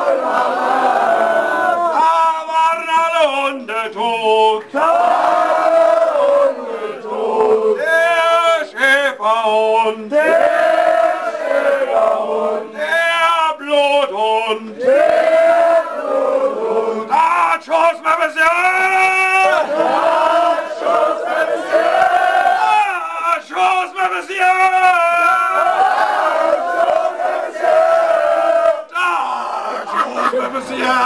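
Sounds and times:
men singing chant-like song: 0.0s - 17.6s, 19.3s - 23.9s.

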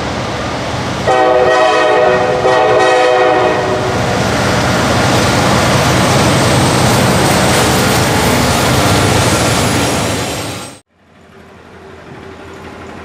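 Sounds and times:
diesel locomotives rumbling past: 0.0s - 13.0s
train horn blasts: 1.1s - 3.9s.

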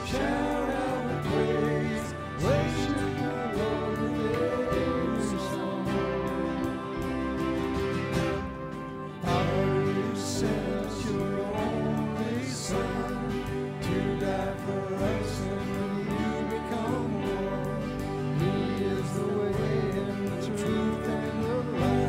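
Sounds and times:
person singing worship song: 0.0s - 22.0s
sustained instrumental backing: 0.0s - 22.0s.

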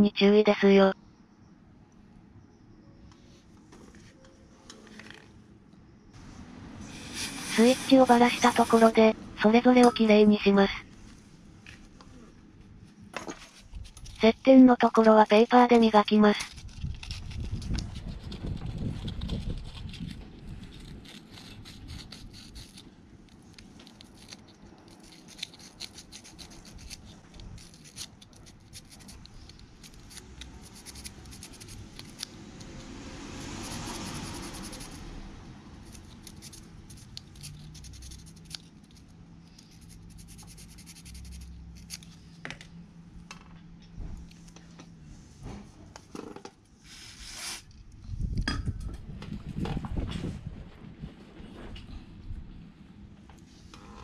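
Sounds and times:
metal part scratching on sandpaper: 6.9s - 9.1s, 16.4s - 22.8s, 23.6s - 32.3s, 35.8s - 42.2s.

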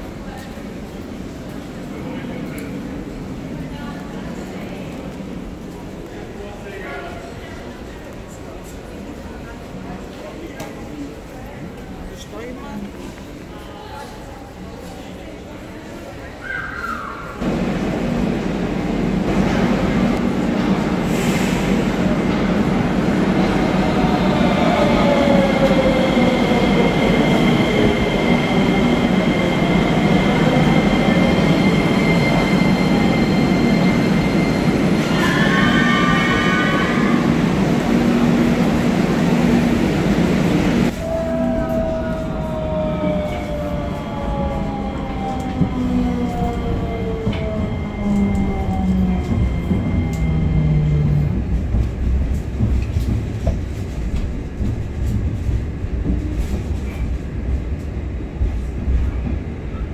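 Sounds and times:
metro train motor whine: 22.0s - 52.8s.

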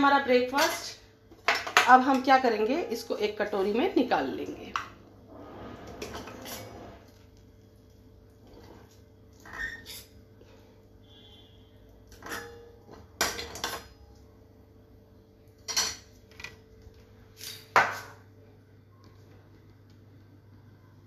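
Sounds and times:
steel spoon scraping a pan: 5.3s - 7.1s, 9.4s - 10.2s, 11.1s - 12.7s.

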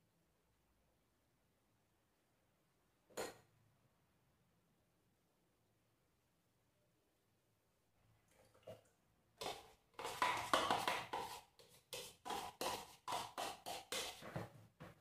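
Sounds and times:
spoon scraping plastic bowl: 9.4s - 14.6s.

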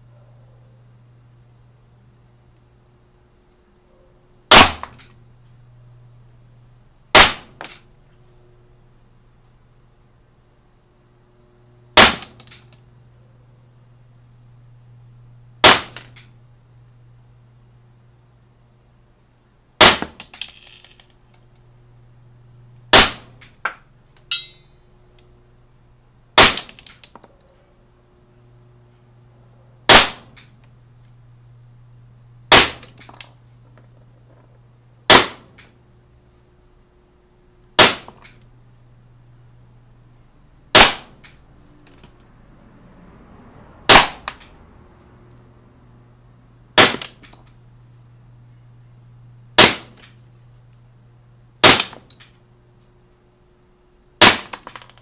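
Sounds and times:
airsoft pistol shots: 4.5s - 5.1s, 7.1s - 7.8s, 12.0s - 12.6s, 15.6s - 16.3s, 19.8s - 20.2s, 22.9s - 23.5s, 26.4s - 26.9s, 29.9s - 30.5s, 32.5s - 33.2s, 35.1s - 35.7s, 37.8s - 38.3s, 40.7s - 41.3s, 43.9s - 44.5s, 46.8s - 47.4s, 49.6s - 50.1s, 51.6s - 52.3s, 54.2s - 54.9s.

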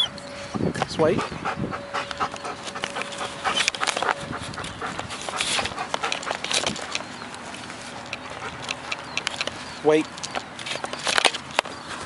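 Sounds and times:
dog whining: 0.0s - 0.2s, 1.2s - 7.2s
dog panting: 0.8s - 9.8s
camera and harness rustling: 1.9s - 12.0s.

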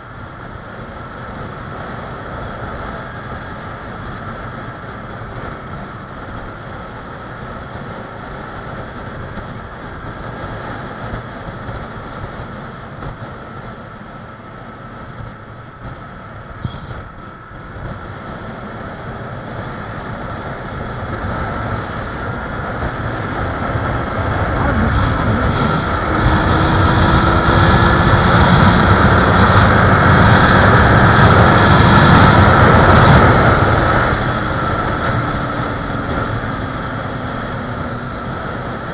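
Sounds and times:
wind rushing over microphone: 0.0s - 38.9s
motorcycle engine running: 20.0s - 38.9s.

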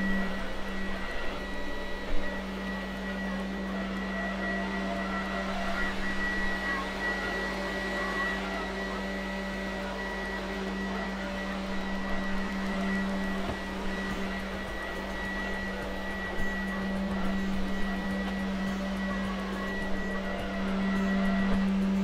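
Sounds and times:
robot vacuum humming: 0.0s - 22.0s.

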